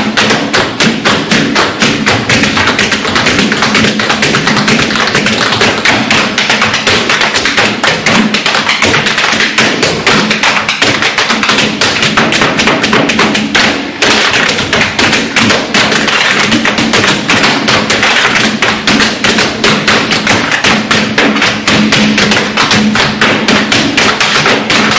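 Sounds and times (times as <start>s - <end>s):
tap shoes striking stage floor: 0.0s - 24.9s.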